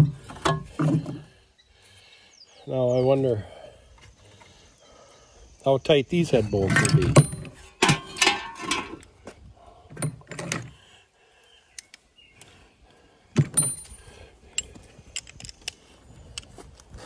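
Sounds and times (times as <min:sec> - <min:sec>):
metal hand tools clanking: 0:06.6 - 0:09.0.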